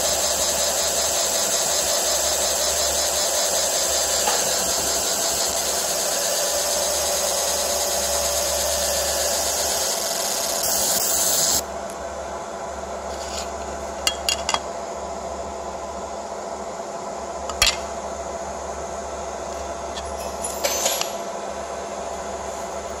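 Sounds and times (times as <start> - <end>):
laser marking buzzing hiss: 0.0 - 11.6
machine hum: 0.0 - 20.3.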